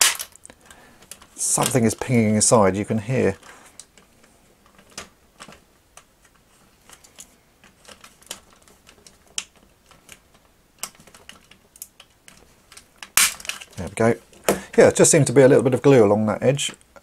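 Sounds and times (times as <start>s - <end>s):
hard plastic clicks and cracks: 3.4s - 14.6s.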